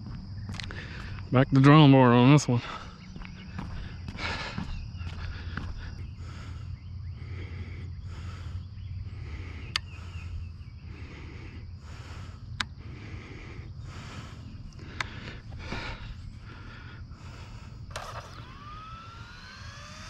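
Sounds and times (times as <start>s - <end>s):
footsteps on grass and concrete: 0.0s - 6.4s
steady low hum: 0.0s - 20.0s
sharp clicks: 9.7s - 9.9s, 14.7s - 15.2s, 17.9s - 18.8s.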